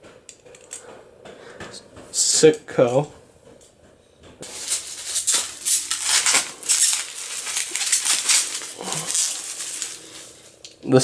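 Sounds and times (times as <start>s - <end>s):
plastic wrapping crinkling: 4.4s - 11.0s.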